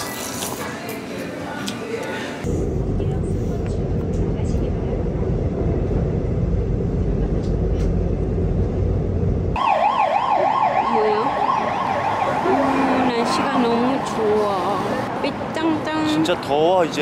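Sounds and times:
subway train rumble: 1.3 - 9.6
warbling siren: 9.5 - 14.2.

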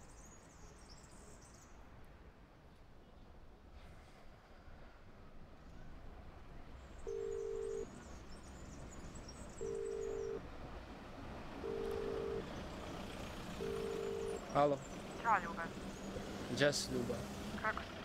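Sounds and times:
telephone ringback tone beeps: 7.1 - 7.9, 9.6 - 10.4, 11.6 - 12.4, 13.6 - 14.4.

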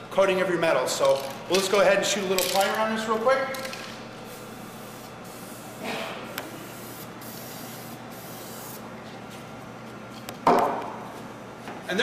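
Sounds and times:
spray paint hissing: 4.2 - 8.8.

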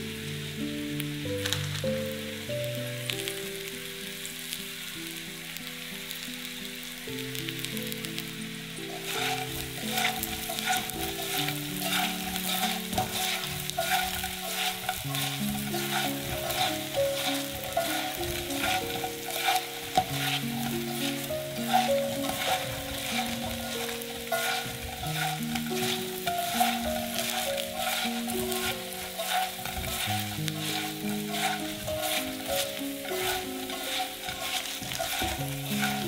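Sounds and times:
food sizzling in a pan: 0.0 - 36.0
soft background music: 0.0 - 36.0
utensil scraping a pan: 8.8 - 36.0.

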